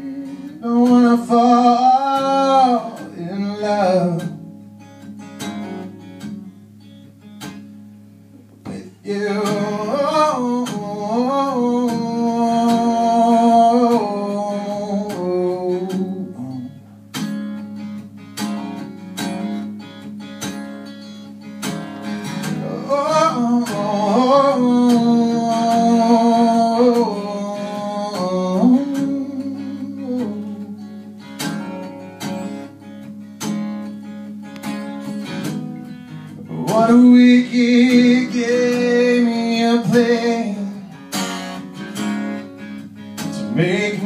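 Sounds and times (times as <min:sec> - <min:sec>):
man singing long notes: 0:00.0 - 0:04.4, 0:08.6 - 0:16.8, 0:22.6 - 0:30.9, 0:36.4 - 0:41.0, 0:43.4 - 0:44.0
acoustic guitars strumming: 0:00.0 - 0:44.0.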